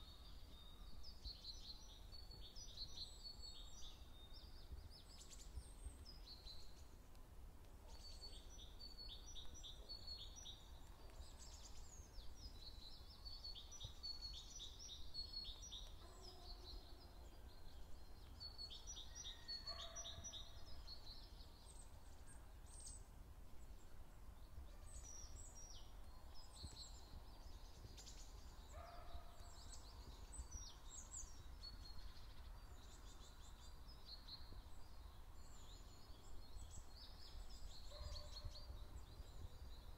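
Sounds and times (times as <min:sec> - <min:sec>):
songbirds chirping and trilling: 0:00.0 - 0:39.9.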